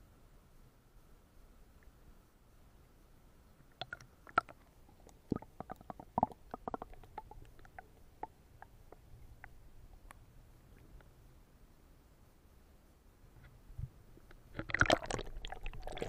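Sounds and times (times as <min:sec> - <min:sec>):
bubbles popping: 0:03.8 - 0:04.6, 0:05.2 - 0:07.9, 0:14.6 - 0:16.0.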